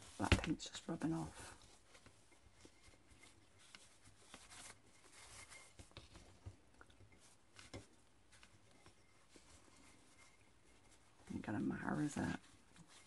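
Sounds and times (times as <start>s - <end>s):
faint rustling: 0.0s - 13.0s.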